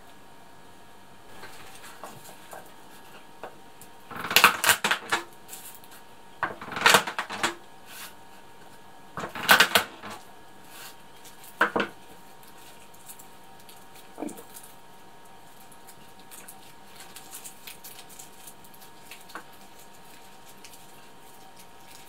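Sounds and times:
garlic skins crackling: 10.2s - 22.0s.

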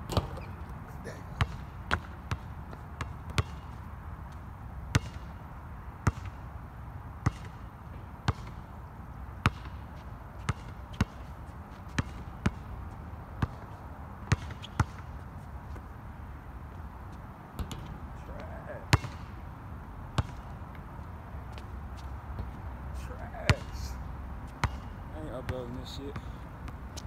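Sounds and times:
basketball bouncing on hard court: 0.1s - 0.6s, 1.4s - 3.7s, 4.9s - 5.3s, 6.0s - 6.4s, 7.2s - 7.6s, 8.3s - 8.6s, 9.4s - 9.8s, 10.4s - 11.3s, 11.9s - 12.7s, 13.4s - 13.6s, 14.2s - 15.1s, 17.6s - 19.3s, 20.2s - 20.5s, 24.5s - 24.9s.

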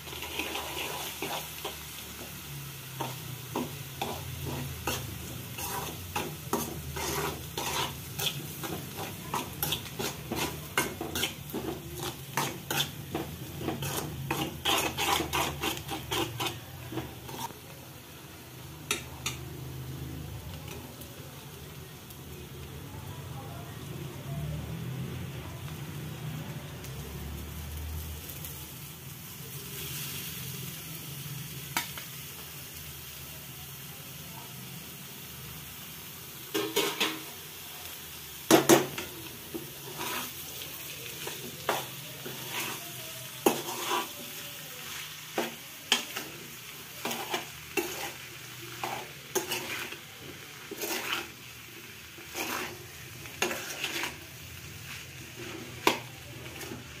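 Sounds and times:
metal spoon scraping pan: 0.0s - 2.0s, 2.9s - 17.6s, 38.5s - 40.4s, 41.2s - 51.5s, 52.2s - 54.4s
vegetables sizzling in oil: 0.0s - 57.0s.

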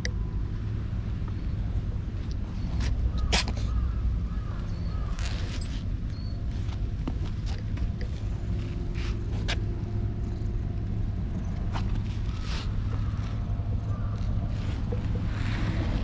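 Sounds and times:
hand rustling over fur: 8.1s - 9.7s, 11.8s - 13.4s, 14.4s - 16.0s.

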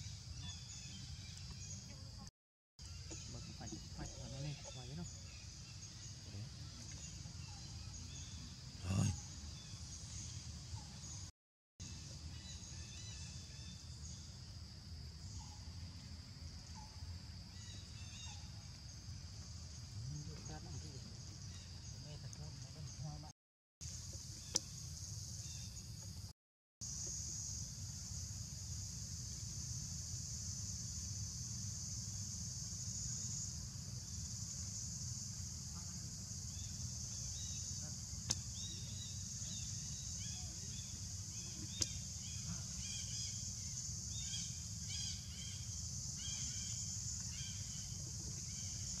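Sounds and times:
high-pitched insect drone: 26.8s - 49.0s.

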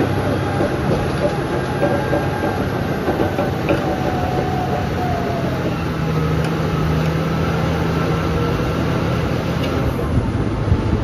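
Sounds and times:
steel tracks clattering: 0.0s - 7.2s
diesel engine running: 0.0s - 11.0s.

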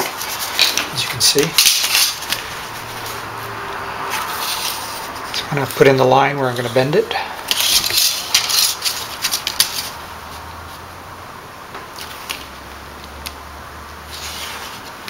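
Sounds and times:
thin metal sheet crinkling: 0.0s - 6.0s, 7.5s - 10.4s
low hum: 2.0s - 6.1s.

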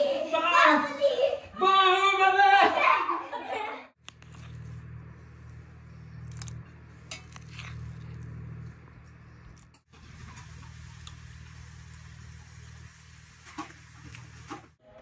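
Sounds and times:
steady low hum: 4.0s - 14.8s.

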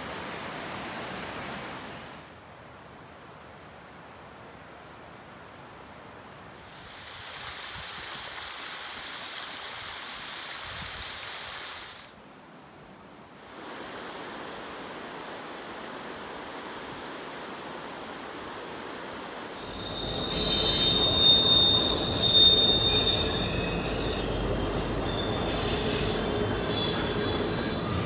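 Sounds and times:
river rushing through rapids: 0.0s - 20.5s
freight train rumbling: 19.4s - 28.0s
train wheels squealing: 19.6s - 28.0s.

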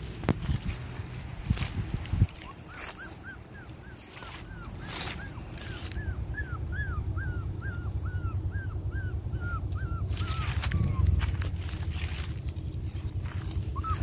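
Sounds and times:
puppy whimpering: 2.3s - 11.9s, 13.4s - 14.0s
low rumble: 4.4s - 14.0s.

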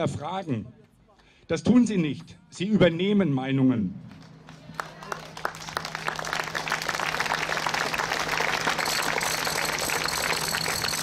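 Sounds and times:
crowd applauding: 4.1s - 11.0s
thin high steady tone: 7.4s - 11.0s.

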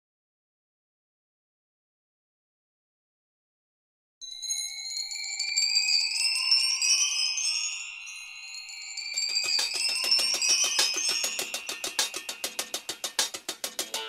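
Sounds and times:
shimmering chime-like music: 4.2s - 13.1s
steady percussion beat: 9.1s - 14.0s.

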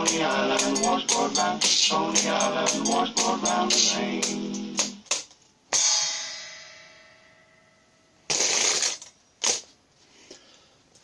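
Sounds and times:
cymbal hit ringing out: 5.7s - 8.0s.

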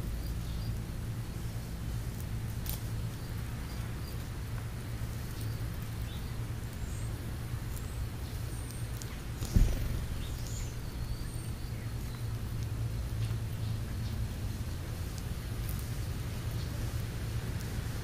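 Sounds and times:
low background rumble: 0.0s - 18.0s
sparrows chirping: 0.0s - 18.0s
dull thump: 9.4s - 10.5s.

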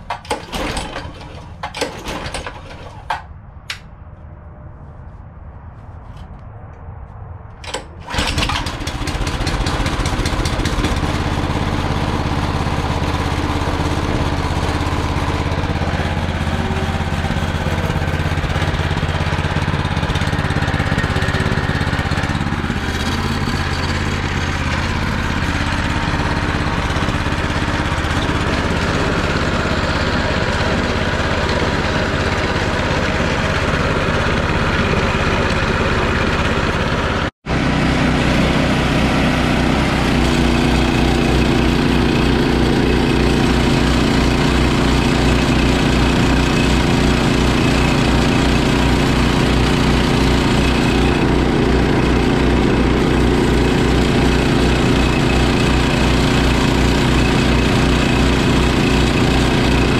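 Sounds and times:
recoil starter pull: 0.0s - 3.8s, 7.6s - 11.8s
small engine running: 7.7s - 59.9s.

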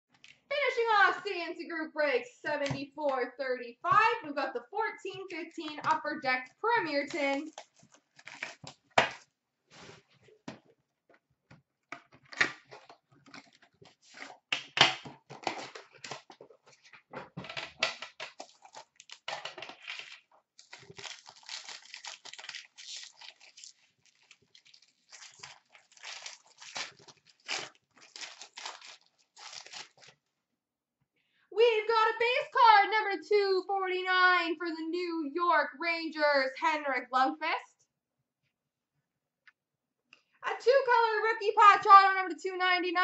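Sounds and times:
plastic wrap crinkling and tearing: 7.2s - 9.2s, 15.3s - 16.4s, 18.2s - 30.3s.

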